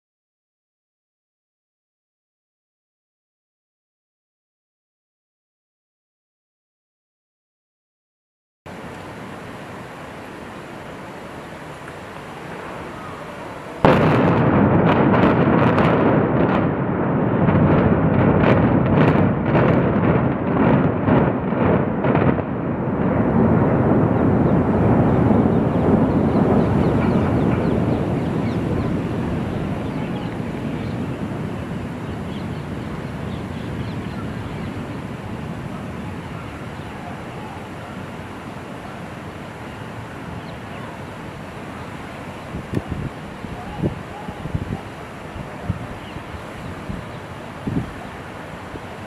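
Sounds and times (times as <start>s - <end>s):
faint steady hiss: 8.7s - 14.2s, 26.1s - 49.0s
explosion blast: 12.5s - 36.5s
rumble with sharp cracks: 13.8s - 36.5s.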